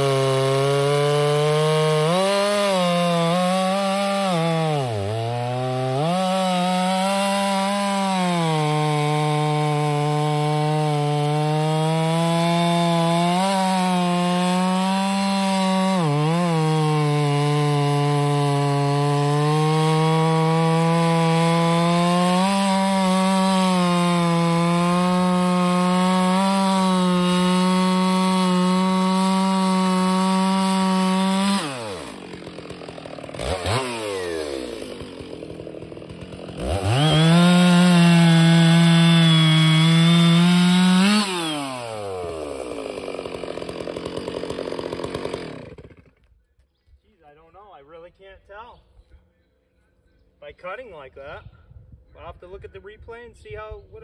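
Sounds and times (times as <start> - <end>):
chainsaw cutting log: 0.0 - 46.4.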